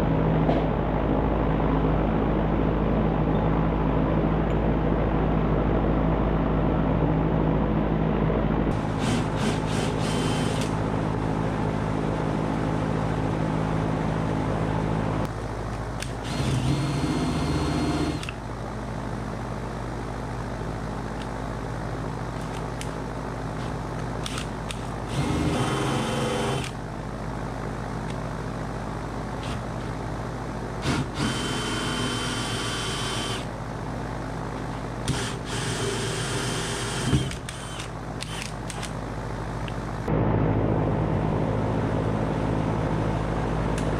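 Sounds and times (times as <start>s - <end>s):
steady low hum: 0.0s - 43.9s
cordless drill boring into wall: 8.8s - 10.8s, 16.0s - 18.4s, 24.2s - 26.8s, 30.8s - 33.5s, 35.1s - 38.9s.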